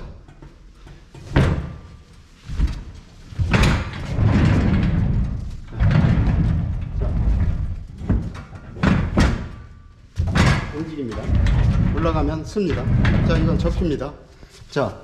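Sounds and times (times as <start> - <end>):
casters rumbling on concrete: 2.5 - 14.1
metal frame knocks: 2.6 - 14.0.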